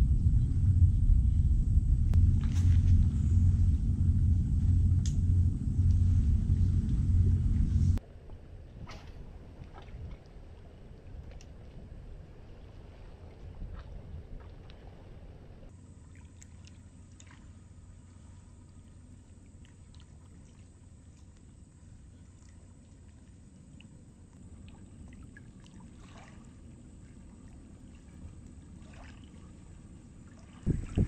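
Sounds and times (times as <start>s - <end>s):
wind on microphone: 0.0s - 8.0s, 30.6s - 31.0s.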